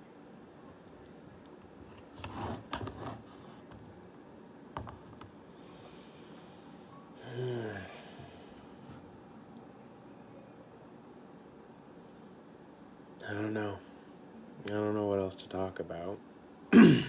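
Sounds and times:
man breathing heavily: 7.2s - 8.9s.

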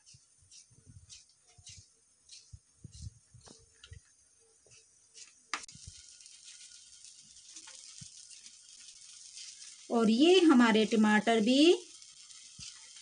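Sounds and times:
knife cutting a tomato: 0.0s - 3.7s.

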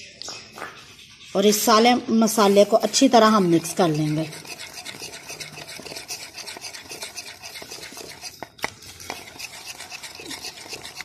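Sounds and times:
whisk beating in bowl: 2.4s - 11.0s
whisk wires clicking on bowl: 3.7s - 11.0s.

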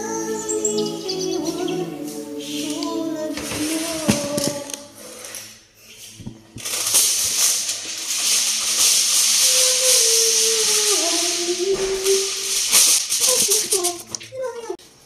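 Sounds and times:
aluminium foil crinkling: 3.6s - 14.8s.

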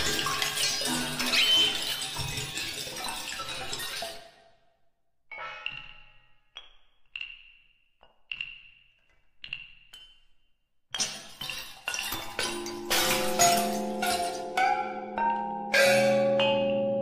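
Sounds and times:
percussion struck with hard mallets: 12.2s - 17.0s.

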